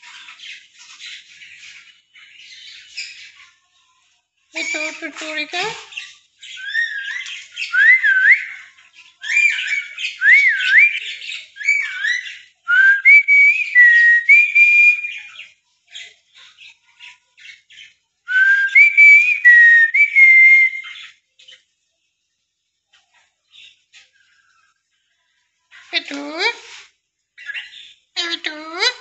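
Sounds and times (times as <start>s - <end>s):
faint scratchy chatter and clicks: 21.2s - 27.8s.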